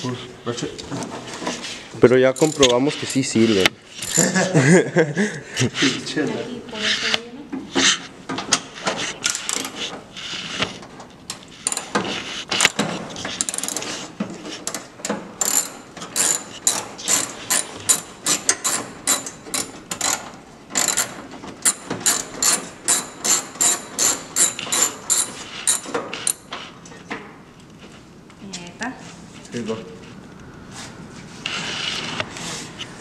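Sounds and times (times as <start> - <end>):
hand ratchet clicking: 2.3 - 3.4, 4.0 - 4.4, 9.2 - 9.8, 11.3 - 12.0, 13.4 - 14.0, 14.6 - 26.5.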